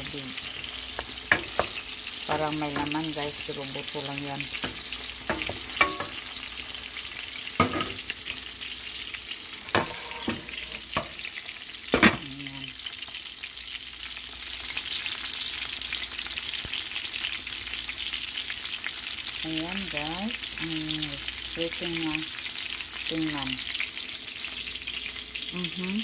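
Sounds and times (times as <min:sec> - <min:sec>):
chicken sizzling in oil: 0:00.0 - 0:26.0
metal cookware knocking: 0:04.6 - 0:06.2.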